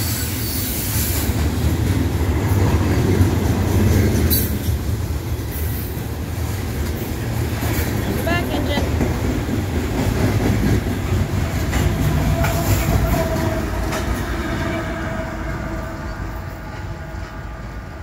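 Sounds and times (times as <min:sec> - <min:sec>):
diesel locomotive passing: 0:00.0 - 0:18.0
train cars clattering over rail joints: 0:01.2 - 0:14.3.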